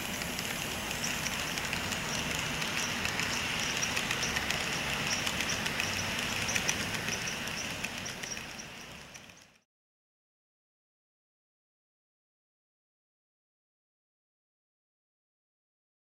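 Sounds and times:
model train whirring: 0.0 - 9.6
wheels clicking over rails: 0.0 - 9.6.

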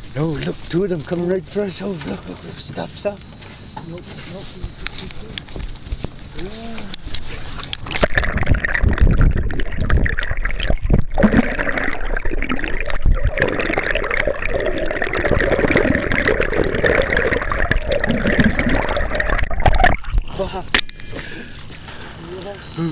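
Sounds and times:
small crackles and clicks: 2.0 - 11.2
underwater rushing and gurgling: 6.9 - 21.8.

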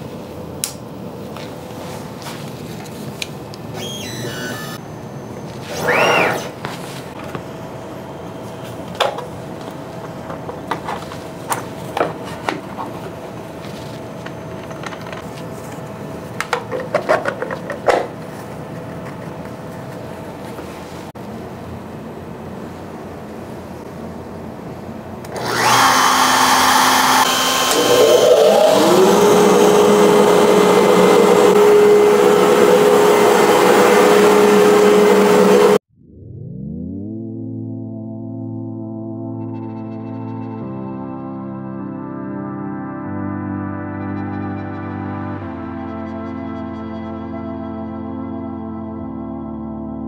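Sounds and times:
router motor whine: 3.8 - 4.8, 5.7 - 6.5, 25.3 - 35.8
dust collector air rush: 25.3 - 35.8.

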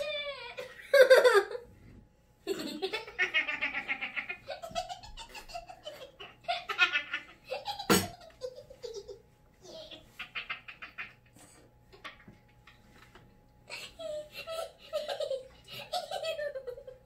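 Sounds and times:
children laughing: 0.0 - 1.8, 2.4 - 17.0.

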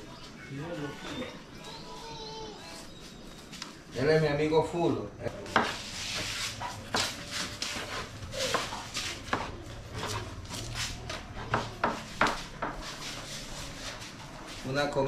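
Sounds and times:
utensils and dishes knocking: 11.3 - 12.9.

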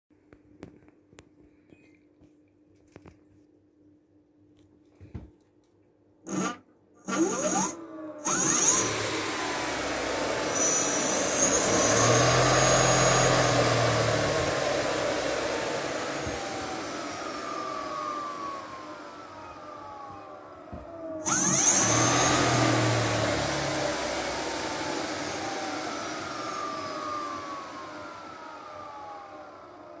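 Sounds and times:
electric motor whirring: 6.3 - 20.2, 21.2 - 29.4.

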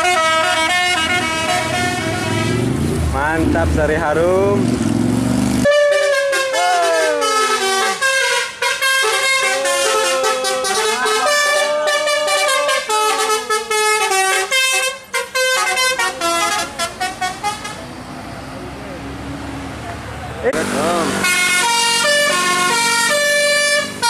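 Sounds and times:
bus horn playing a melody: 0.0 - 2.8, 5.6 - 17.9, 20.7 - 24.0.

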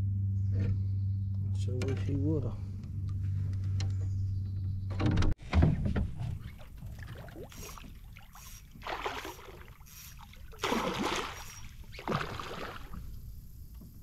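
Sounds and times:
water splashing beside boat: 6.2 - 14.0.

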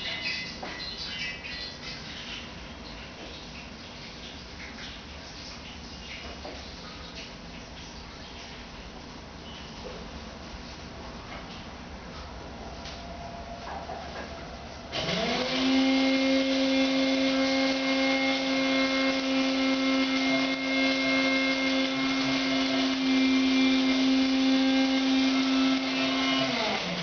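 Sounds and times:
small electric motor whining: 14.9 - 27.0.

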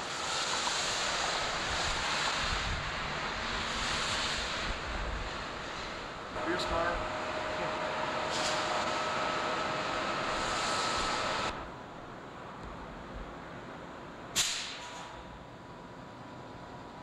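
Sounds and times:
steady whine: 0.0 - 14.4
subway train noise: 0.0 - 17.0
short sharp hiss: 3.6 - 4.8, 14.4 - 15.3.

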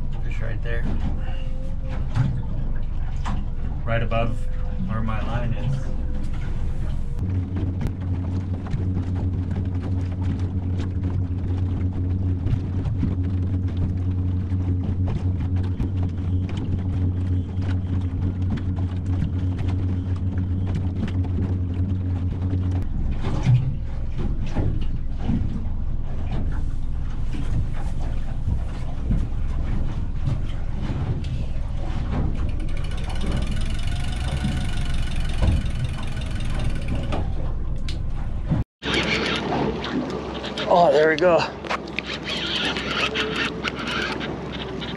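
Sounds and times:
boat motor low hum: 0.0 - 44.9
water and hull noise: 0.0 - 44.9
knocks on hull: 34.3 - 37.3.

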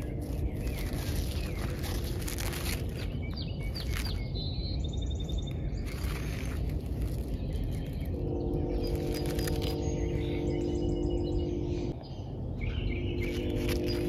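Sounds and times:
small birds chirping: 0.0 - 14.0
low rumble: 4.4 - 14.0
steady hum with held tones: 8.1 - 14.0.

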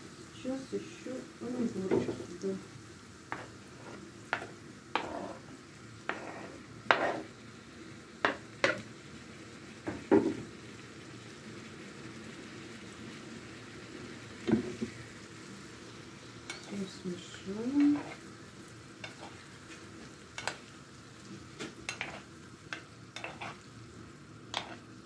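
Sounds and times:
vegetables sizzling in pan: 0.0 - 25.0
metal spoon knocking and scraping: 21.9 - 23.6.

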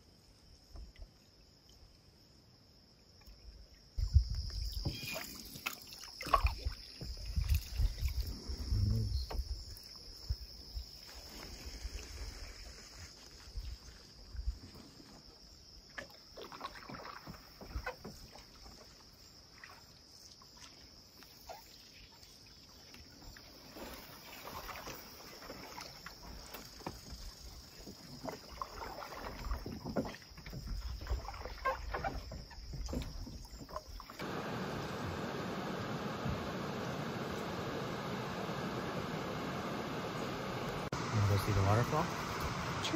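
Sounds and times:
high insect buzz: 4.0 - 14.4
paddle splashing in water: 4.6 - 8.7, 15.8 - 42.9.

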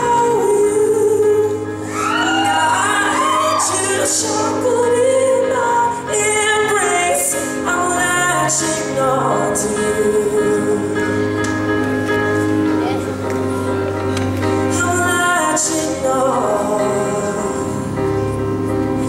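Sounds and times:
man singing into microphone: 0.0 - 11.3, 14.7 - 18.2
pop backing track: 0.0 - 19.0.

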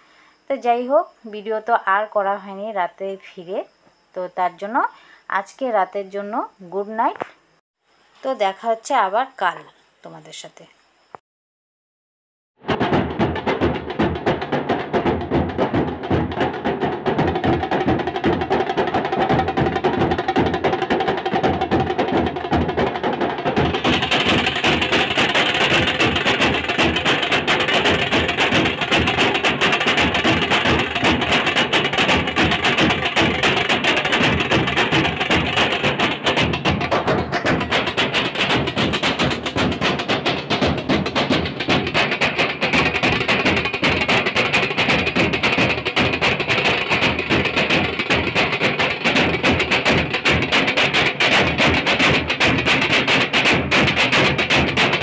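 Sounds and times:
drum band playing: 12.6 - 55.0.

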